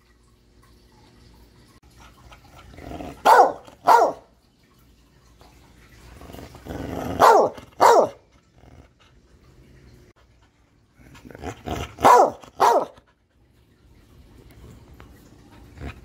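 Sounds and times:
dog growling: 2.4 - 3.9, 6.1 - 9.2, 10.9 - 13.0, 15.5 - 16.0
dog barking: 3.2 - 4.3, 7.1 - 8.2, 12.0 - 13.0.

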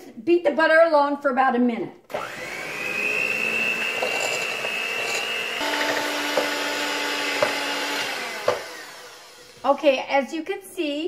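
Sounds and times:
electric hand mixer whining: 2.1 - 9.7.

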